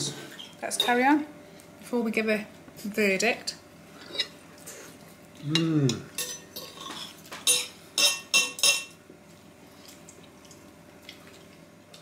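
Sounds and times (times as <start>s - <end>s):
cutlery clinking on china plate: 6.2s - 8.9s.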